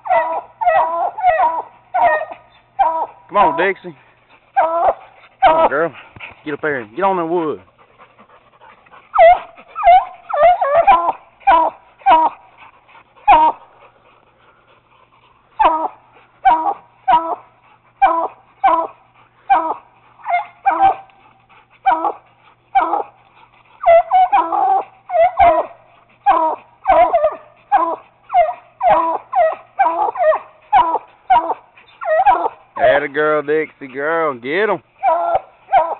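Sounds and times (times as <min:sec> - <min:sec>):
dog barking: 0:00.0 - 0:03.7, 0:04.6 - 0:05.7, 0:19.5 - 0:21.1, 0:23.9 - 0:32.5, 0:35.0 - 0:35.9.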